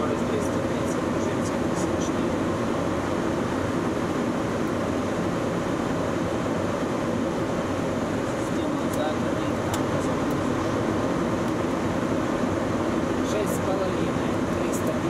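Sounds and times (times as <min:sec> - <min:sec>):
airflow rush in cockpit: 0:00.0 - 0:15.0
jet engines droning: 0:00.0 - 0:15.0.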